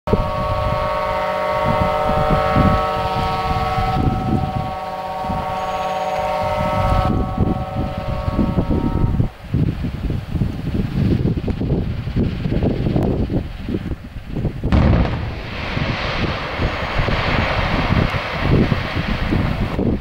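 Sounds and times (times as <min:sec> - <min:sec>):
warning siren blaring: 0:00.1 - 0:09.4
wind buffeting microphone: 0:00.1 - 0:20.0.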